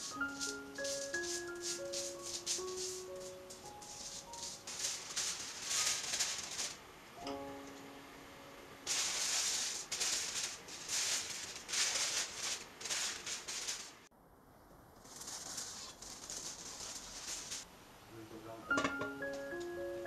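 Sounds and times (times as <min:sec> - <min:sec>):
plucked background music: 0:00.0 - 0:04.9, 0:07.2 - 0:08.5, 0:18.6 - 0:20.0
aluminium foil crinkling: 0:00.0 - 0:06.8, 0:08.9 - 0:14.1, 0:15.0 - 0:17.7.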